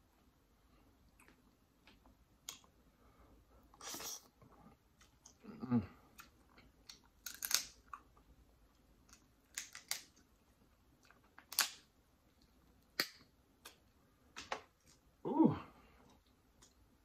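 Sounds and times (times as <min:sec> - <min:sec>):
eating clicks and smacks: 0:01.1 - 0:02.8, 0:11.0 - 0:15.0.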